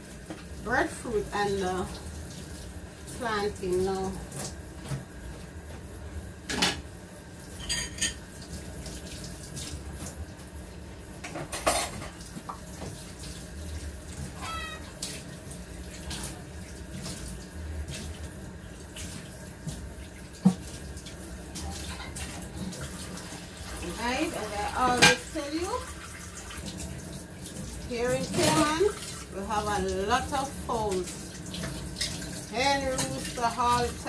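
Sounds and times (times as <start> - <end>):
dishes clattering: 7.6 - 8.2, 11.3 - 12.2, 24.9 - 25.4.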